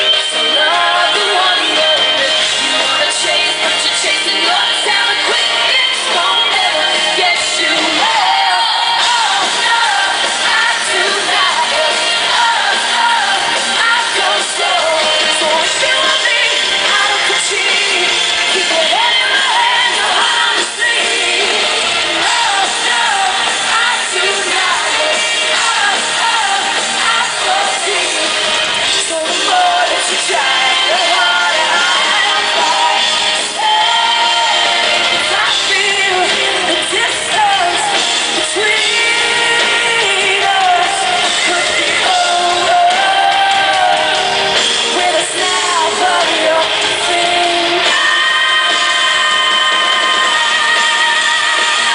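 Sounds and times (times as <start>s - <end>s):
pop-rock band playing: 0.0s - 51.9s
woman singing: 0.0s - 51.9s.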